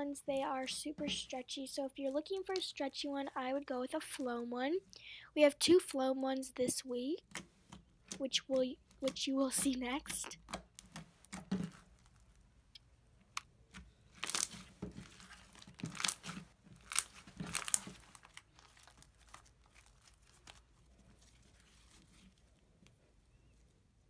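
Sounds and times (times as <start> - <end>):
slime crunchy crackling: 10.1 - 22.2
slime sticky tearing: 10.4 - 21.7.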